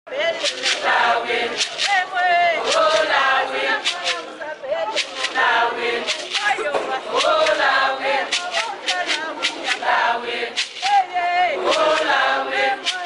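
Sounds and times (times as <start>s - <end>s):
women singing together: 0.6s - 13.0s.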